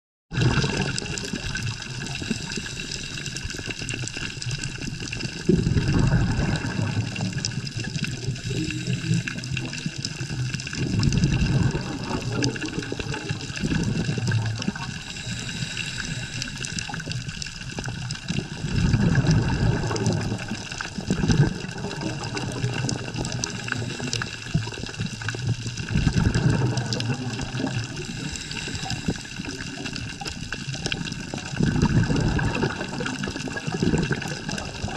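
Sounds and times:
scuba bubbles gurgling: 0:00.3 - 0:34.9
underwater hiss: 0:00.4 - 0:31.6.

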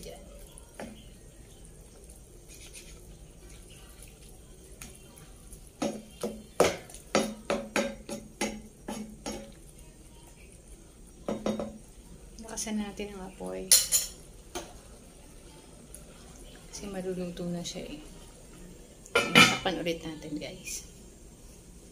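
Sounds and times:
spatula stirring in frying pan: 0:00.0 - 0:19.8
spatula knocking against pan: 0:05.8 - 0:09.5, 0:11.2 - 0:11.8.

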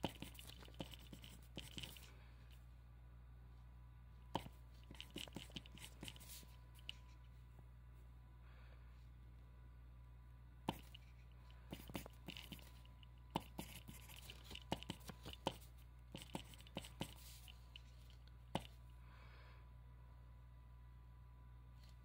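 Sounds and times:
pen scratching on paper: 0:00.0 - 0:02.1, 0:04.4 - 0:07.0, 0:10.7 - 0:17.6
faint steady hum: 0:00.0 - 0:22.0.

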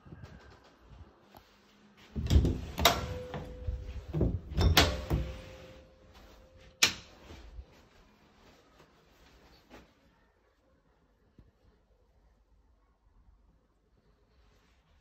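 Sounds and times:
door rattling and swinging: 0:02.2 - 0:03.6, 0:04.2 - 0:05.4.

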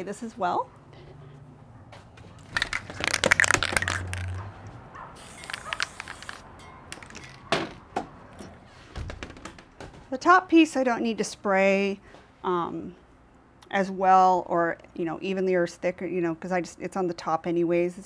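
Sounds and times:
aerosol spray hiss: 0:05.2 - 0:06.4.

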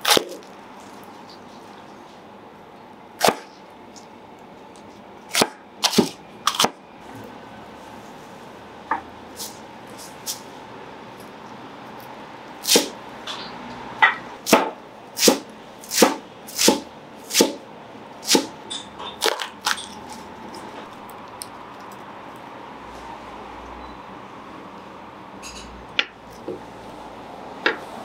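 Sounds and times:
knife chopping on cutting board: 0:12.7 - 0:13.0, 0:14.5 - 0:17.6, 0:18.3 - 0:18.6.

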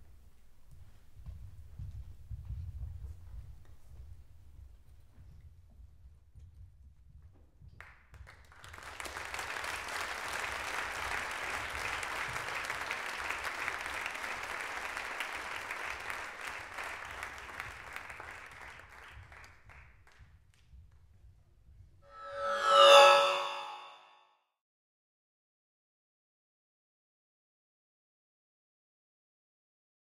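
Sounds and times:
audience applauding: 0:08.4 - 0:19.8.

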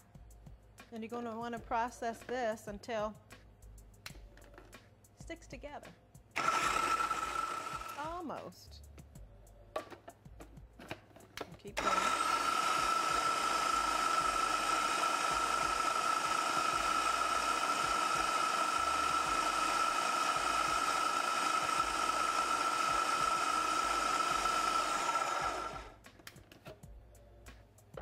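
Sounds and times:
food processor motor whine: 0:06.4 - 0:08.1, 0:11.8 - 0:26.0.

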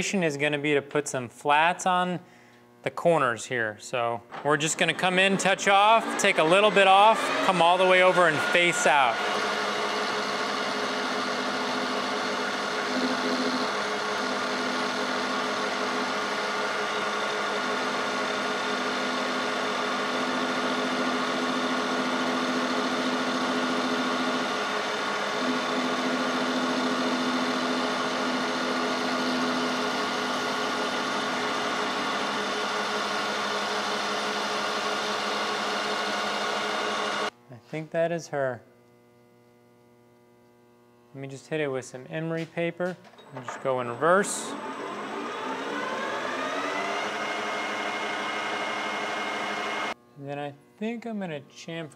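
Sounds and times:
metal lathe running: 0:04.8 - 0:37.3, 0:43.3 - 0:50.0.

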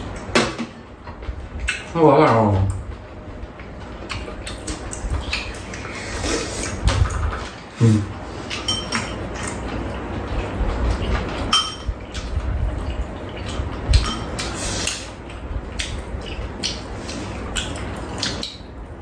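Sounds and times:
spoons clinking against ceramic bowls: 0:08.6 - 0:09.2, 0:11.5 - 0:11.9.

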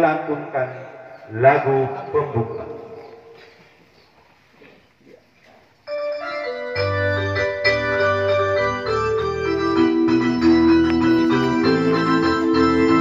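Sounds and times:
electronic organ chords: 0:05.9 - 0:13.0.

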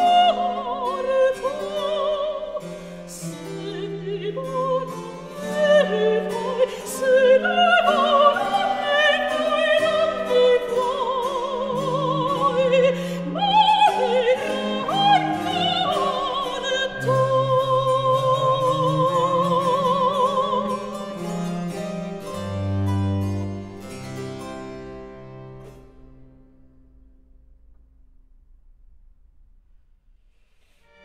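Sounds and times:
soprano singing with vibrato: 0:00.0 - 0:21.2
harpsichord accompaniment: 0:13.7 - 0:26.4.

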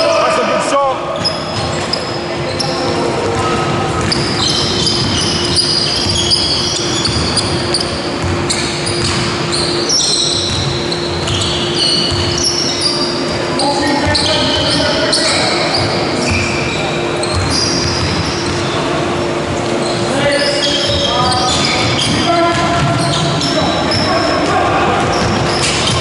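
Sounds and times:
trainers squeaking on floor: 0:01.1 - 0:26.0
basketball dribbling on wooden court: 0:03.3 - 0:09.3.

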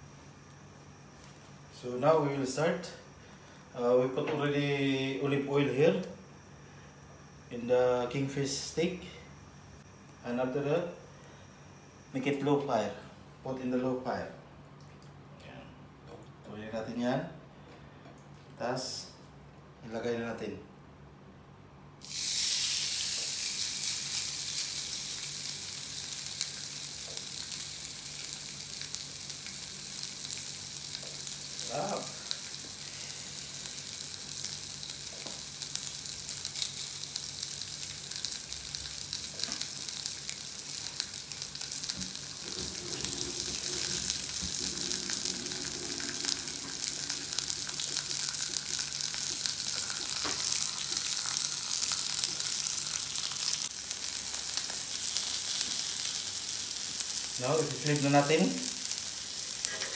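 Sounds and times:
fish sizzling on grill pan: 0:22.0 - 0:59.9.

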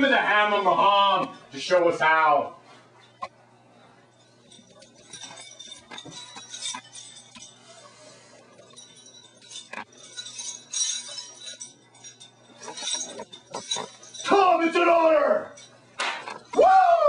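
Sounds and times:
steady low hum: 0:00.0 - 0:17.0
metallic jingling and clinking: 0:04.1 - 0:16.5.

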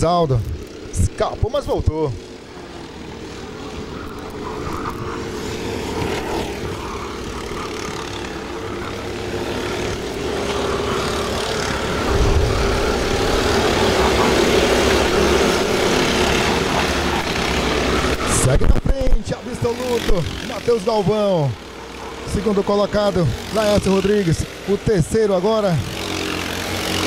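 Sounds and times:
racing kart engines whining: 0:00.0 - 0:27.0
low rumble: 0:12.0 - 0:14.9.

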